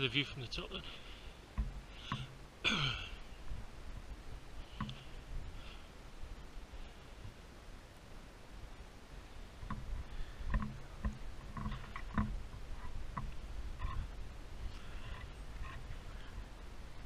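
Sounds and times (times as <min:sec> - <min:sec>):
soft knocks and clicks: 0:01.6 - 0:02.3, 0:10.5 - 0:14.0
wind on microphone: 0:08.6 - 0:17.0.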